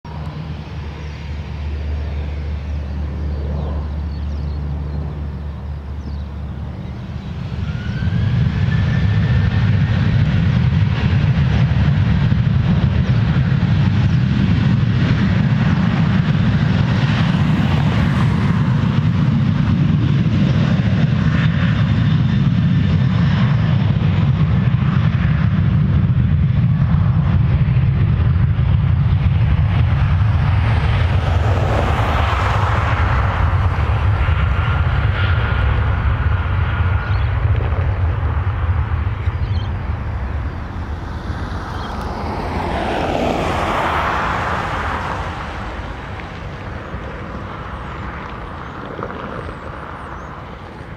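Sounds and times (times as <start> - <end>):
jet engines spooling up: 0.1 - 50.9.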